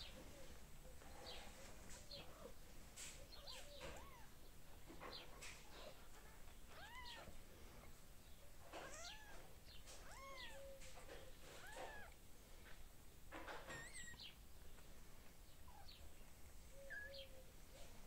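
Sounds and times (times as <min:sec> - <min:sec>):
kittens mewing: 0:03.3 - 0:04.4, 0:05.6 - 0:07.4, 0:08.7 - 0:12.2, 0:13.6 - 0:14.3.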